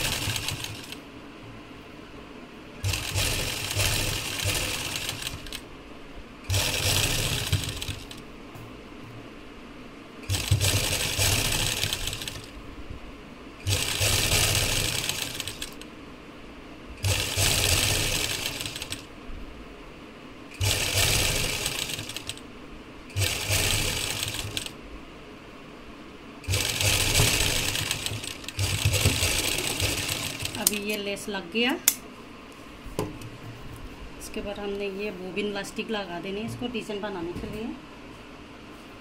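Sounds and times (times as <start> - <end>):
sewing machine stitching: 0.0 - 1.0, 2.8 - 5.6, 6.5 - 8.2, 10.2 - 12.5, 13.6 - 15.8, 17.0 - 19.1, 20.6 - 22.4, 23.1 - 24.8, 26.4 - 31.0.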